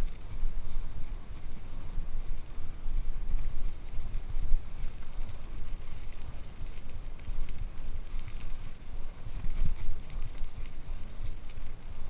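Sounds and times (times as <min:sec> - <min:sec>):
bike tyres rumbling on gravel: 0:00.0 - 0:12.0
wind on microphone: 0:00.0 - 0:12.0.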